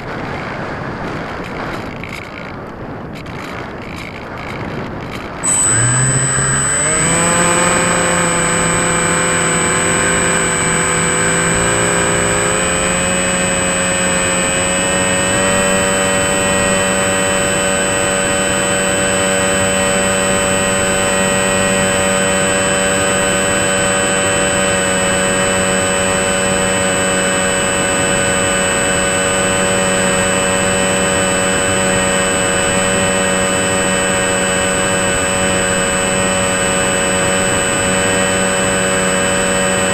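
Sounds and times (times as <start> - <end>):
electric motor and propeller whine: 0.0 - 39.9
constant high-pitched tone: 3.1 - 39.9.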